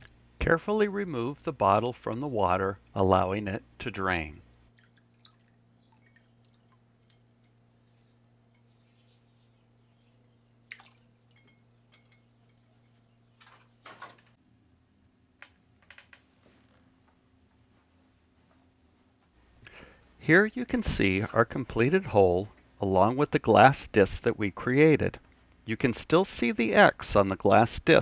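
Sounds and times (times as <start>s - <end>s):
water dripping from bottle: 4.6s - 7.6s, 10.0s - 12.7s.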